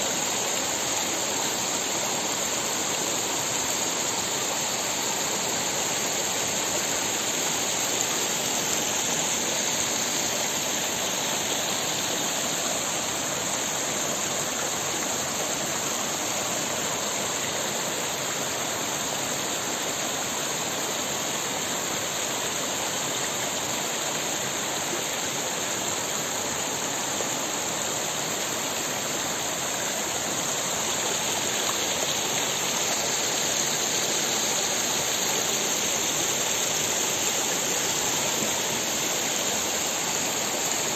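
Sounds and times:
stream rushing over rocks: 0.0s - 40.9s.

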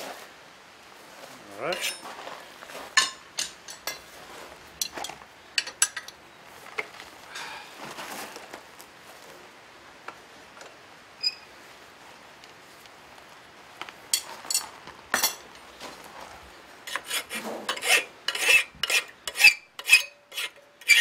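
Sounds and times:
rough scraping noise: 1.5s - 3.0s, 16.9s - 21.0s
steel clinking against a vise: 1.7s - 2.1s, 3.0s - 4.1s, 4.8s - 6.2s, 14.1s - 15.6s, 16.9s - 21.0s.

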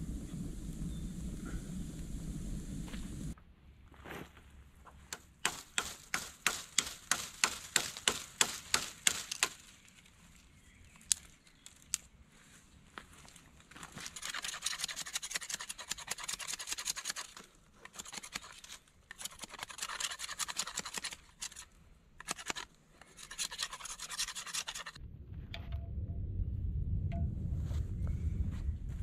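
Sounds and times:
low steady rumble: 0.0s - 3.4s, 25.0s - 29.0s
knife scraping wooden stick: 14.0s - 25.0s.

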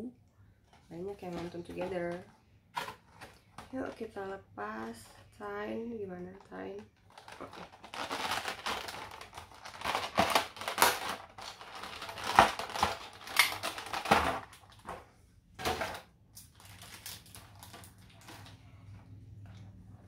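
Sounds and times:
plastic packaging crinkling: 6.8s - 14.9s, 15.6s - 18.7s
faint low hum: 14.7s - 20.0s.

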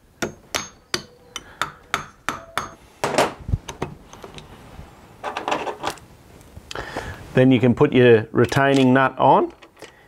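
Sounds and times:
hammer tapping metal: 0.2s - 2.8s.

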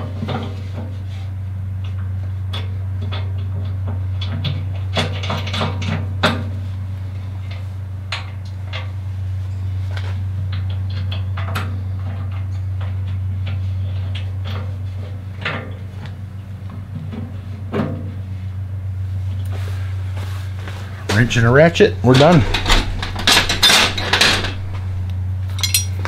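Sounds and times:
steady low hum: 0.7s - 26.0s
metallic clinks of bolts and nuts: 22.5s - 24.9s, 25.5s - 26.0s.

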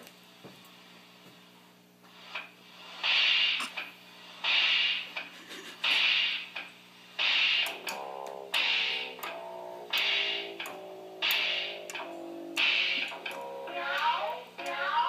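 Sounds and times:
hissy beat: 2.0s - 14.9s
electronic keyboard chords: 7.2s - 14.9s.

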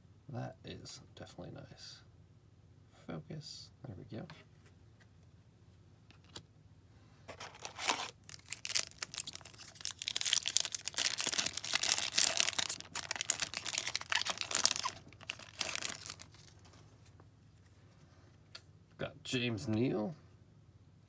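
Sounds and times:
foil wrapper tearing and crinkling: 7.4s - 16.6s.

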